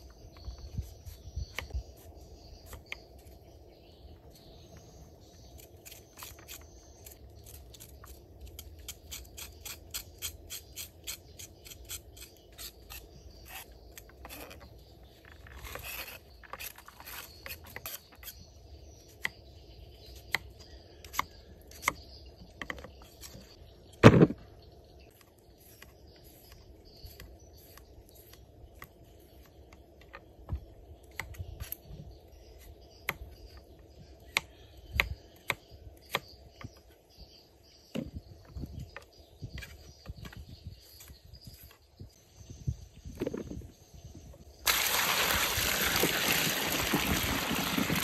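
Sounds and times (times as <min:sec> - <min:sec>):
loud thump: 0:24.0 - 0:24.4.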